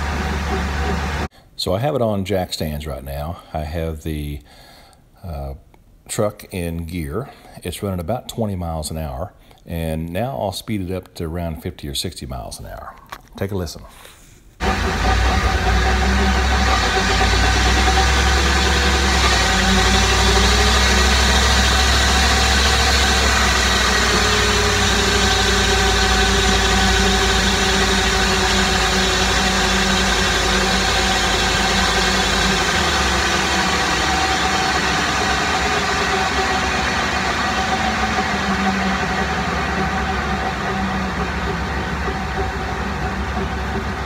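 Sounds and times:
drivetrain whine with drifting tones: 0.0 - 1.3, 14.6 - 44.0
engine running: 0.0 - 1.3, 14.6 - 44.0.

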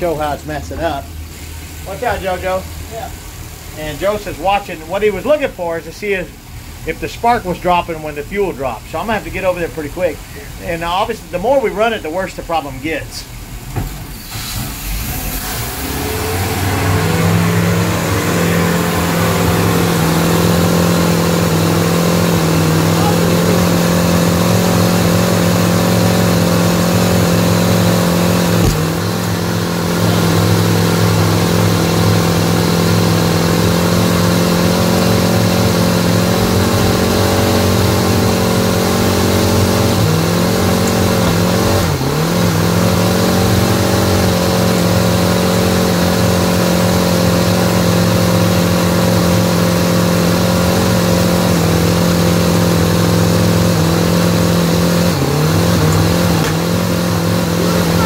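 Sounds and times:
boat engine idling rough: 0.0 - 58.0.

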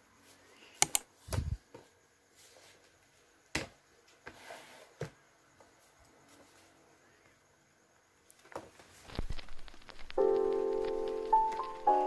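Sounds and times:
paper rustling: 8.9 - 12.0.

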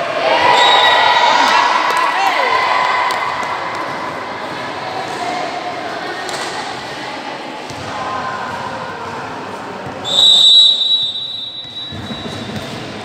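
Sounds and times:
referee's whistle blast: 10.0 - 12.5.

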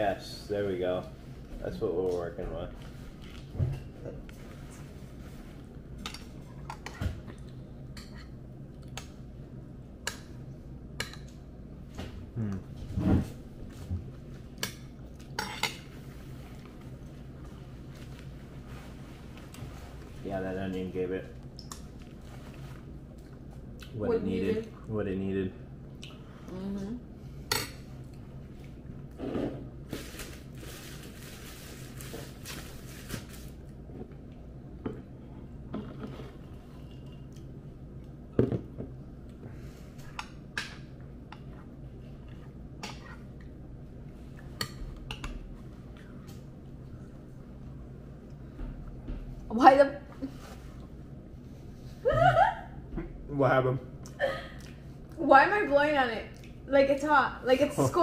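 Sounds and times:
steady low hum: 0.0 - 58.0
hum through the mouth: 12.1 - 13.4.

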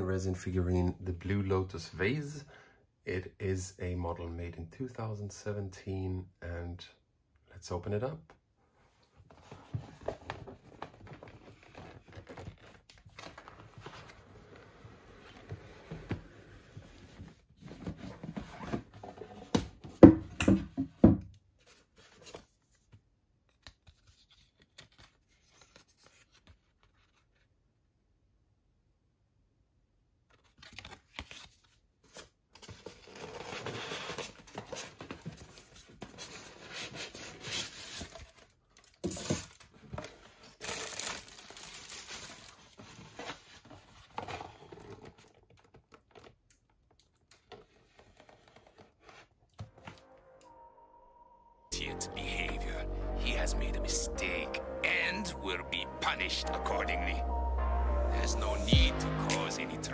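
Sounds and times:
cardboard box scraping and rustling: 32.8 - 38.4, 41.6 - 45.2.

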